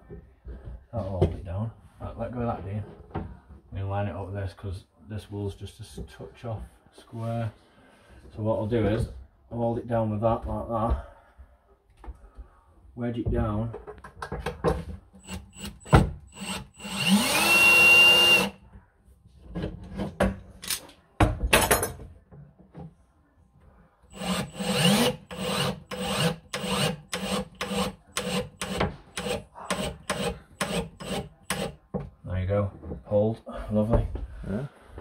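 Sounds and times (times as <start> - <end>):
cordless drill driving screw: 15.2 - 18.6, 24.1 - 31.8.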